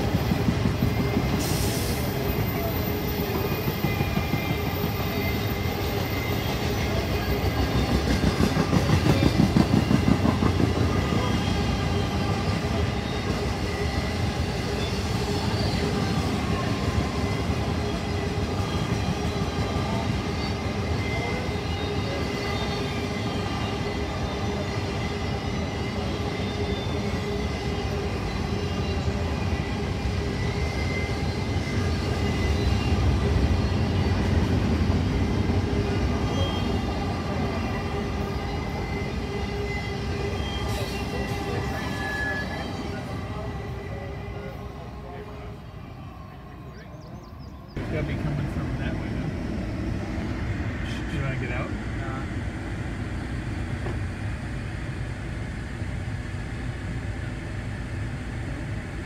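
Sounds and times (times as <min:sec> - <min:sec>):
train wheels clacking over rails: 0:00.0 - 0:43.1, 0:53.2 - 0:54.3.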